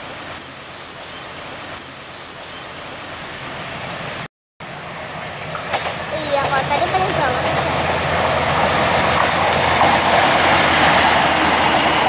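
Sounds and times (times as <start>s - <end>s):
insect pulsing chirp: 0.0s - 9.5s
insects buzzing: 0.0s - 12.0s.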